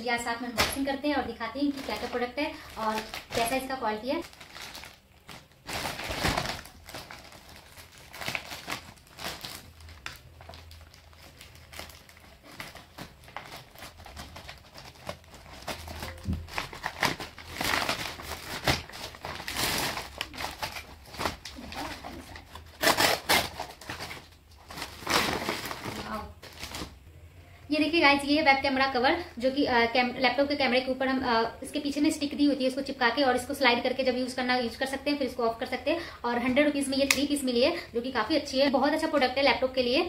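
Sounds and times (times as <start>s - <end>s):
packaging crinkling and rustling: 1.6s - 27.0s.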